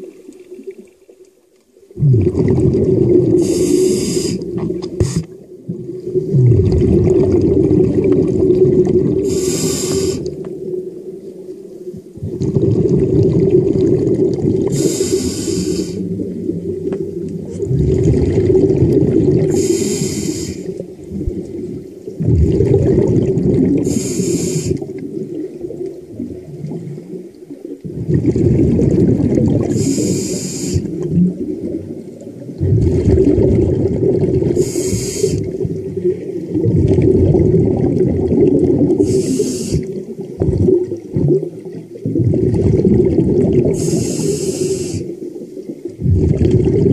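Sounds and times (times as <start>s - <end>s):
exhaled bubbles rumbling: 1.8s - 46.9s
regulator inhale hiss: 3.4s - 5.4s, 9.2s - 10.4s, 14.7s - 16.1s, 19.4s - 20.8s, 23.8s - 25.0s, 29.6s - 31.0s, 34.6s - 35.6s, 39.0s - 40.0s, 43.6s - 45.2s.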